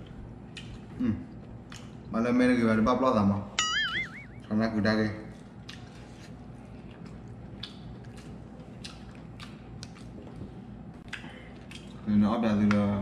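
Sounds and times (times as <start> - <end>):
chewing: 0.0 - 2.1, 5.2 - 12.1.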